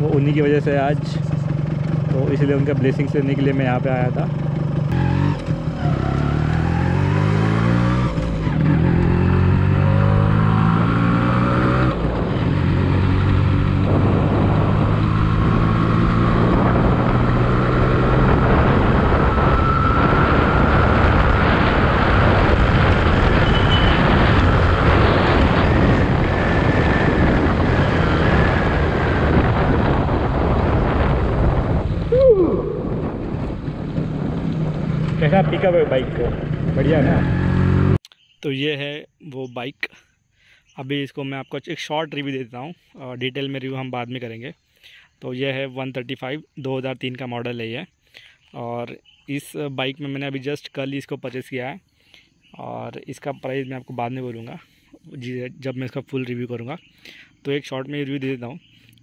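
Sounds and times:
motorcycle engine accelerating: 0.0 - 38.0.

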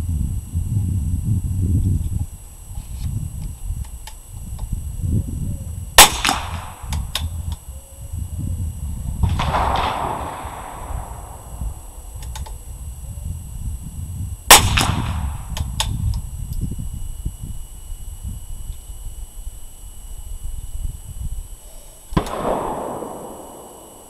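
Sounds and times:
rifle shots: 6.0 - 6.9, 9.2 - 12.1, 14.5 - 15.2, 22.2 - 24.0.

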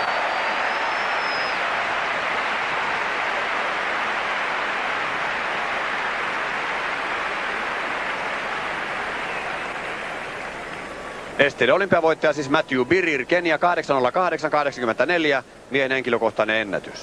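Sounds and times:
stadium crowd applause: 0.0 - 13.3.

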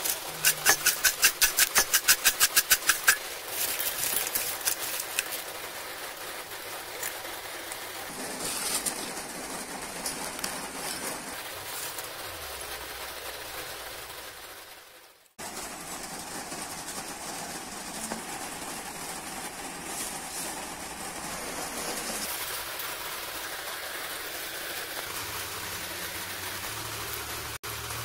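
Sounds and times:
chips rattling in steel bowl: 0.0 - 5.5
steady hiss: 0.0 - 28.0.

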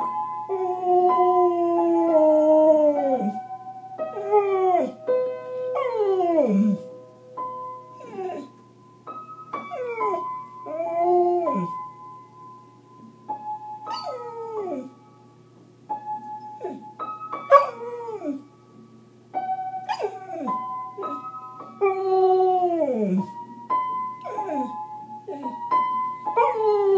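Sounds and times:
dog howling: 5.8 - 6.9.

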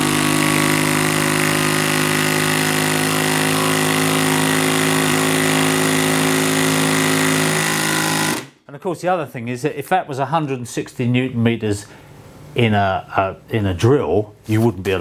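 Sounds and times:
impact driver rattling: 0.0 - 8.5.

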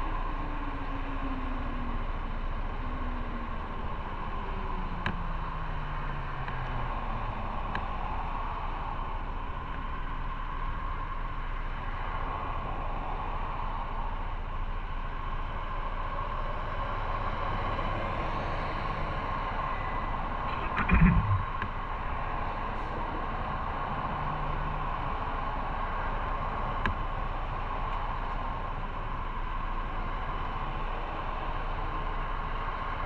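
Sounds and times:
wind and road noise: 0.0 - 33.0
motorcycle engine running: 20.5 - 21.6.

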